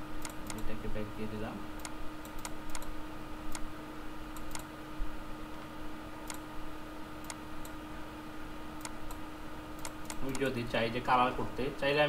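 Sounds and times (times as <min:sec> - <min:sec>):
steady low hum: 0:00.0 - 0:12.0
computer mouse clicks: 0:00.2 - 0:00.6, 0:01.8 - 0:02.9, 0:03.5 - 0:03.7, 0:04.3 - 0:04.7, 0:06.2 - 0:06.4, 0:07.2 - 0:07.8, 0:08.8 - 0:09.2, 0:09.8 - 0:10.5.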